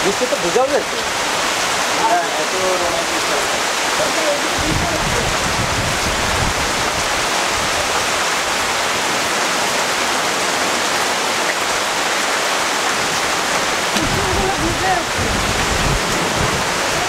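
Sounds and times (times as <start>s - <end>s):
rain pouring on foliage: 0.0s - 17.0s.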